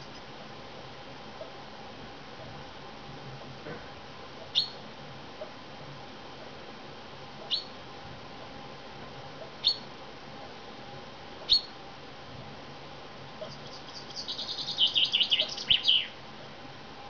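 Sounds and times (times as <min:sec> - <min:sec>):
chaffinch calling: 0:04.5 - 0:04.8, 0:07.5 - 0:07.8, 0:09.6 - 0:09.9, 0:11.5 - 0:11.8, 0:13.4 - 0:16.2.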